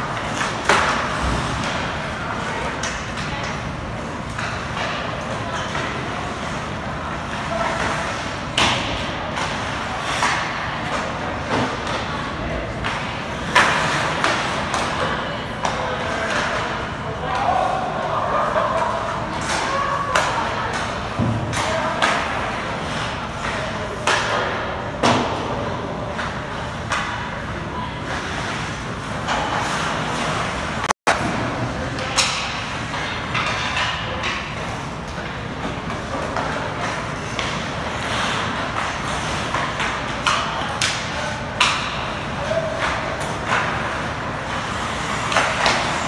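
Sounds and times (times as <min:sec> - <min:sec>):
hockey sticks and pucks knocking: 0:00.0 - 0:17.6, 0:18.5 - 0:27.5, 0:28.1 - 0:46.0
noise of play on ice: 0:00.0 - 0:46.0.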